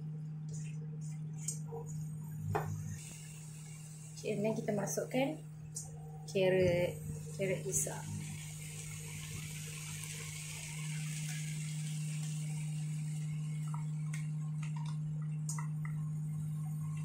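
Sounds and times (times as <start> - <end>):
steady low hum: 0.0 - 17.0
food sizzling in a wok: 2.9 - 5.4, 7.0 - 14.6.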